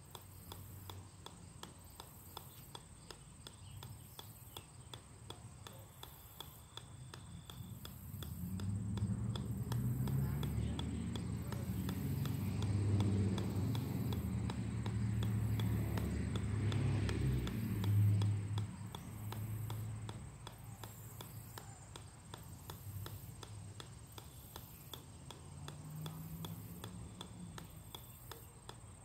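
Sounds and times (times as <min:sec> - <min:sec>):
ball bouncing on steel: 0:00.0 - 0:29.0.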